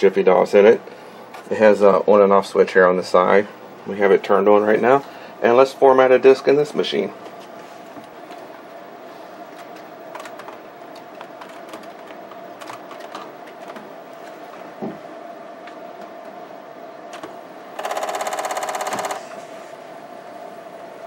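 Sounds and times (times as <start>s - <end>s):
floppy drive rattling: 9.5s - 14.9s, 17.0s - 19.4s
keyboard keys clicking: 9.6s - 13.9s.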